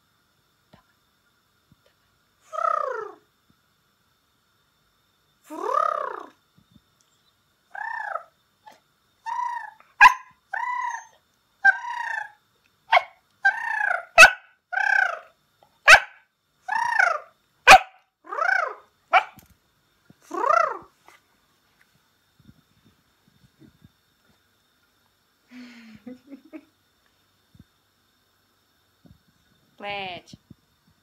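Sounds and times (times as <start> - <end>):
dog whining barks: 9.3 - 19.4.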